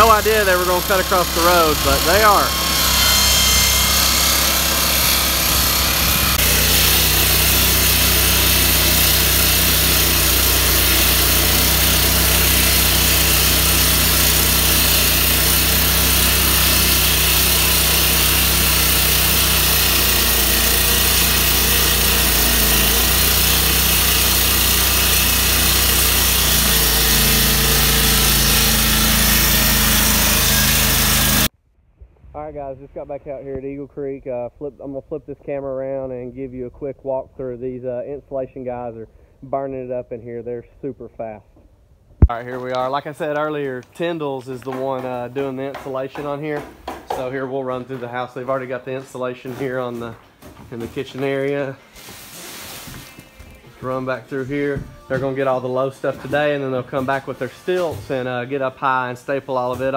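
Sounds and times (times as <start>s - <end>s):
road saw cutting pavement: 0.0s - 31.5s.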